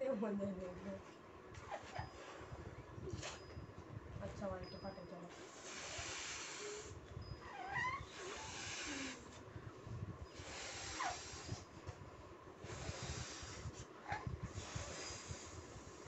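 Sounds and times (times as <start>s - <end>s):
hissing breaths into balloons: 5.3s - 9.4s, 10.3s - 12.0s, 12.6s - 16.0s
balloon squeaks: 5.5s - 9.2s.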